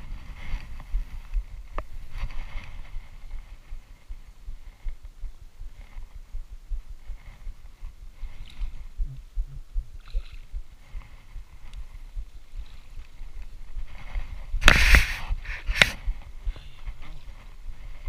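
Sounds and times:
footsteps through long grass: 0.0 - 9.0, 10.6 - 18.0
low thumps: 0.9 - 16.6
loud brushing rustle: 1.9 - 4.1, 10.8 - 18.0.

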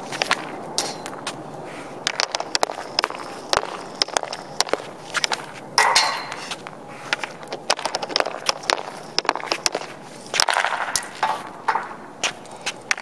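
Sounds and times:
hockey stick tapping puck: 2.1 - 6.4, 7.5 - 12.0
puck shot clack: 7.6 - 12.0.

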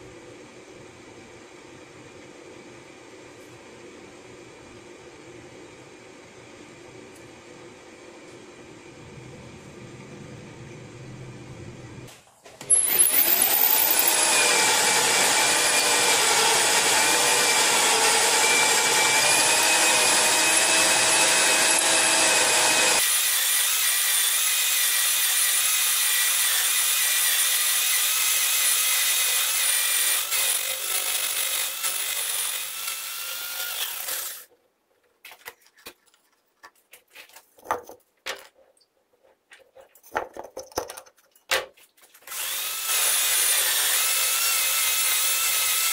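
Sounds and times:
lathe cutting steel with whine: 13.0 - 34.4.

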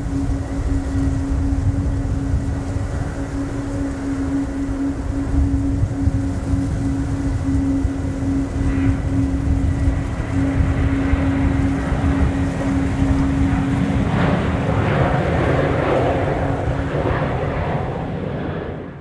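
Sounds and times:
distant jet engines rumbling: 0.0 - 19.0
jet noise rush: 0.0 - 19.0.

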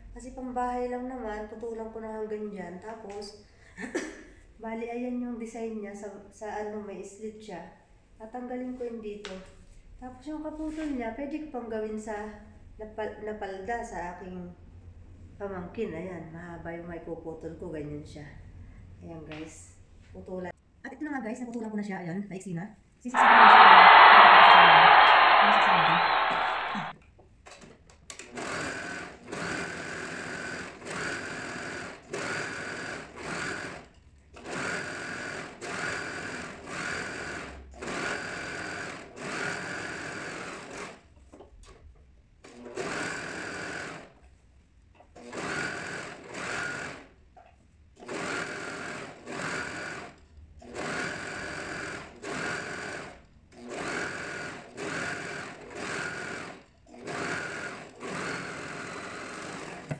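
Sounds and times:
overlock machine whining: 23.2 - 26.9.

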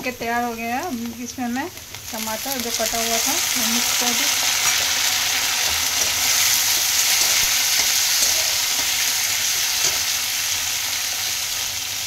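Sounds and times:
onions sizzling in hot oil: 0.0 - 12.0
metal spatula scraping pan: 4.6 - 10.5.

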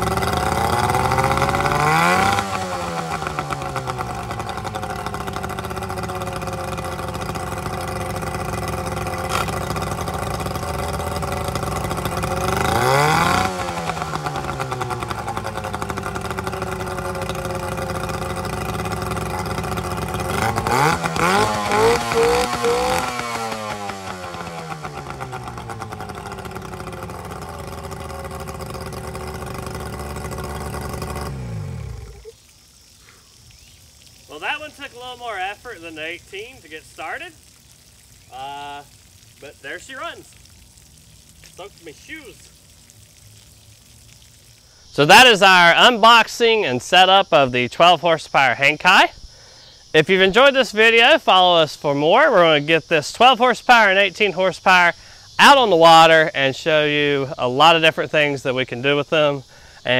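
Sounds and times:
outboard motor revving and idling: 0.0 - 32.4, 50.3 - 59.9.

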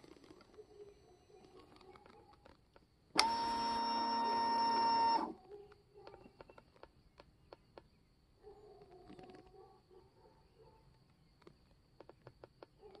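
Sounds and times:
steady electric whine: 3.2 - 5.4.

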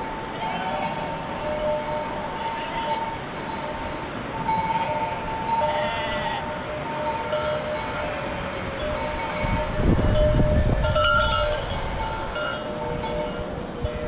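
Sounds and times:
sheep bells clinking: 0.0 - 14.0
sheep bleating: 0.3 - 1.4, 2.2 - 3.2, 4.7 - 6.7.

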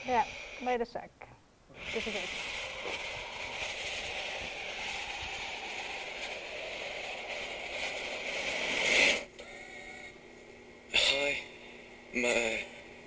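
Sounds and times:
rushing wind-like whoosh: 1.8 - 9.3.

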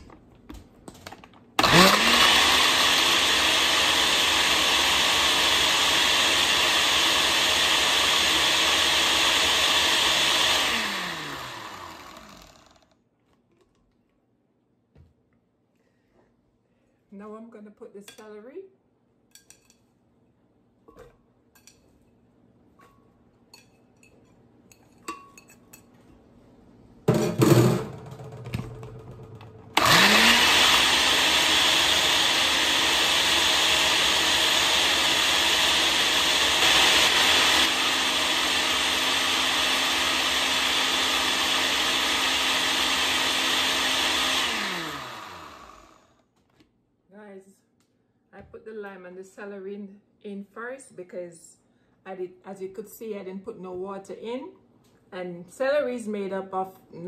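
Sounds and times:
blender motor whining: 1.6 - 13.0, 29.8 - 46.2.

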